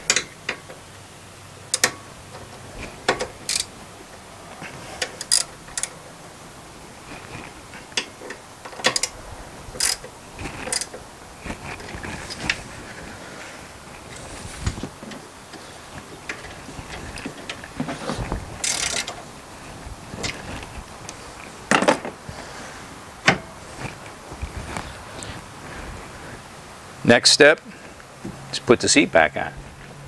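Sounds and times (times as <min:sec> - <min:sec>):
ratchet wrench clicking: 0:01.7 - 0:02.0, 0:03.1 - 0:03.7, 0:05.0 - 0:06.0, 0:08.7 - 0:09.2, 0:09.8 - 0:10.9, 0:18.6 - 0:19.2.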